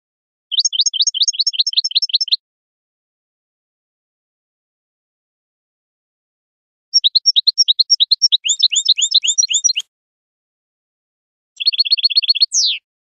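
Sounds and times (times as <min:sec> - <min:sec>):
bird trill: 0:00.5 - 0:02.4, 0:07.0 - 0:09.8, 0:11.6 - 0:12.9
goldfinch twittering: 0:00.5 - 0:02.4, 0:07.0 - 0:09.8, 0:11.6 - 0:12.8.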